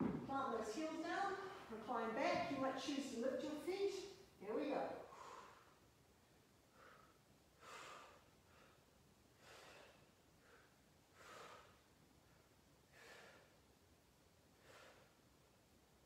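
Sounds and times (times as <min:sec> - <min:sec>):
person breathing rhythmically: 0:05.1 - 0:05.8, 0:06.6 - 0:13.8, 0:14.5 - 0:15.4.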